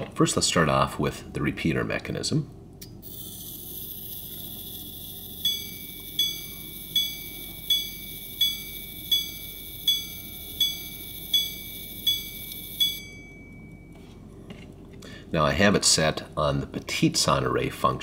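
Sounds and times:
pocket watch gong strikes: 3.6 - 14.0.

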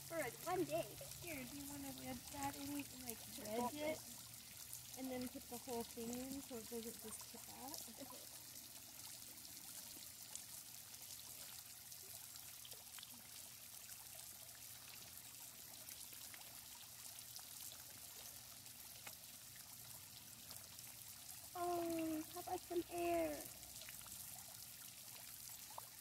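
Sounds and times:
trickle of flowing water: 0.0 - 26.0
small ticks: 18.2 - 19.6.

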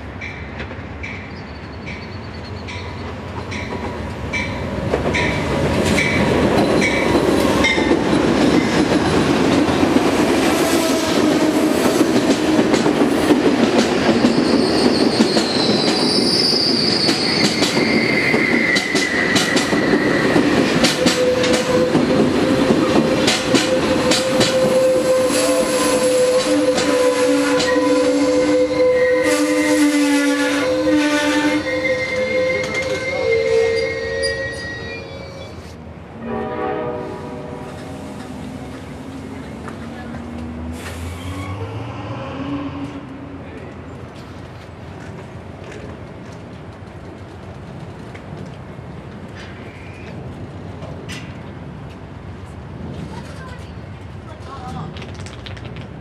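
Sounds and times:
train wheels clicking over rails: 0.2 - 27.8
wheel squeals: 14.1 - 22.4.

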